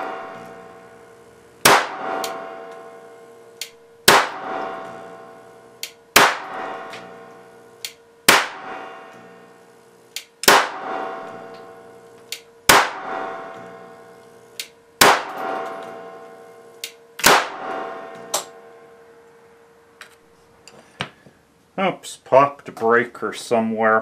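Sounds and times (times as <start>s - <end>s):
electrical discharge cracks: 1.6s - 2.8s, 3.6s - 5.2s, 5.8s - 13.8s, 14.6s - 16.2s, 16.8s - 18.6s
small electrical snap: 1.6s - 2.9s, 3.6s - 5.1s, 5.8s - 18.6s.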